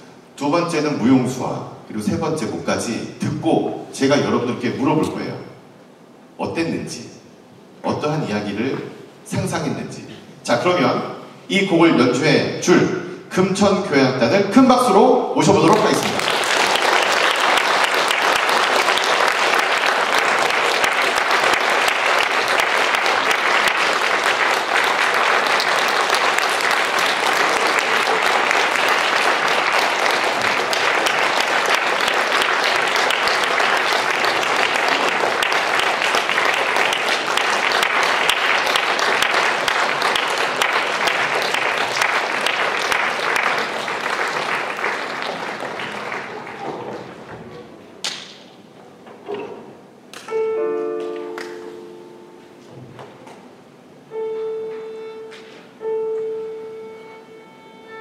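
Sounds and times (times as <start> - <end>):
audience applauding: 15.5 - 48.2.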